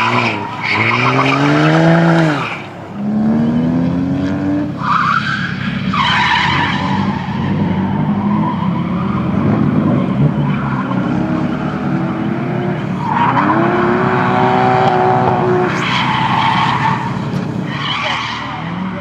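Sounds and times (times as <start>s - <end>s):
tyres squealing: 0.0s - 2.7s
car engine revving: 0.0s - 19.0s.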